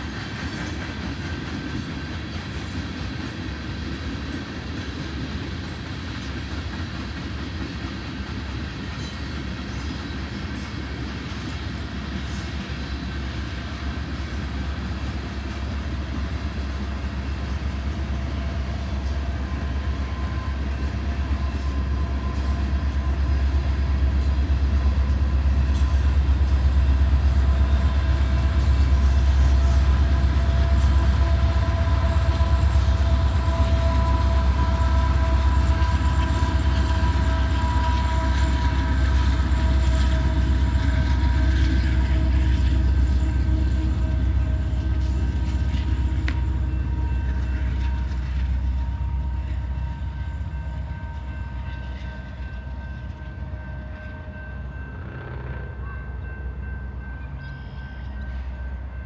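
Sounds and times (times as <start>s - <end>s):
coal train rumbling past: 0.0s - 59.0s
crossing signal bells ringing: 13.0s - 59.0s.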